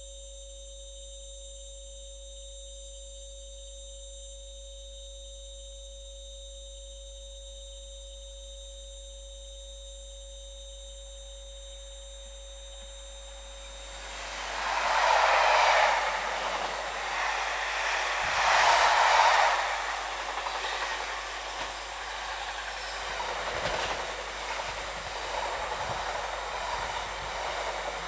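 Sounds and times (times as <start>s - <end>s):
diesel locomotive and train approaching: 13.1s - 28.0s
low hum: 13.4s - 28.0s.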